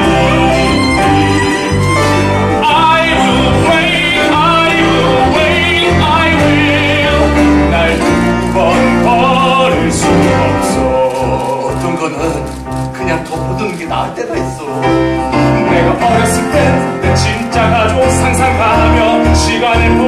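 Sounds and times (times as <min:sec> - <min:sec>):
violin melody with vibrato: 0:00.0 - 0:11.6
held bass notes and chords: 0:00.0 - 0:20.0.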